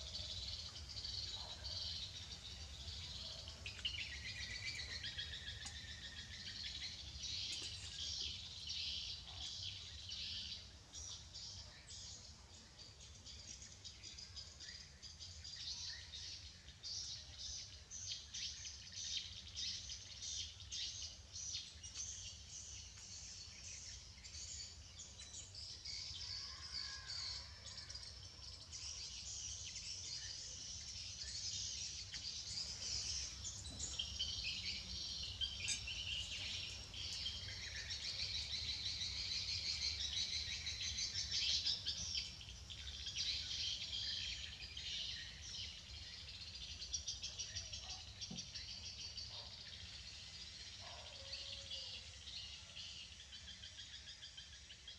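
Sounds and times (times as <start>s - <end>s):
birds chirping: 0.0s - 10.7s, 28.8s - 54.5s.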